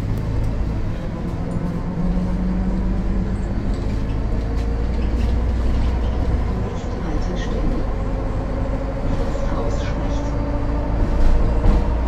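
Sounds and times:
bus diesel engine rumbling: 0:00.0 - 0:12.0.

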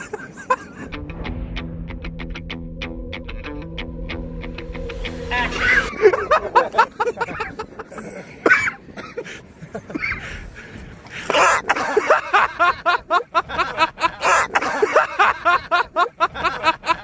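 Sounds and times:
hearty laughter: 0:00.0 - 0:01.0, 0:05.8 - 0:17.0.

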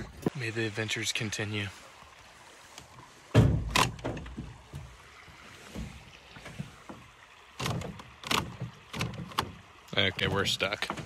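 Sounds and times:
water and hull noise: 0:00.0 - 0:11.0
boat hull knocks: 0:03.3 - 0:05.0, 0:05.7 - 0:09.6, 0:10.3 - 0:11.0.

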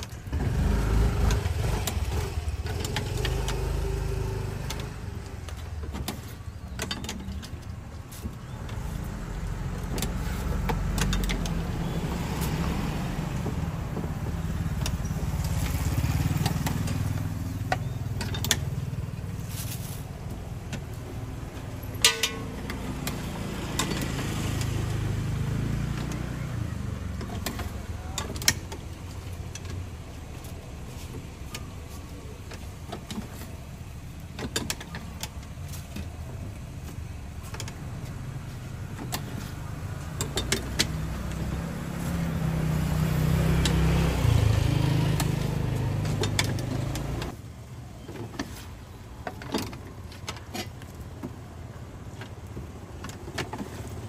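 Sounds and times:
vehicle engine running: 0:07.4 - 0:48.1.

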